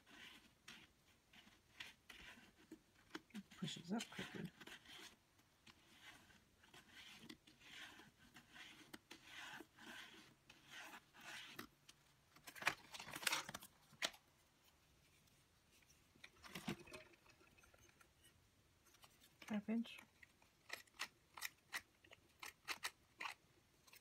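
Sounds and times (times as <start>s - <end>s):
paper scraping strokes: 0.0s - 2.8s, 3.4s - 11.7s.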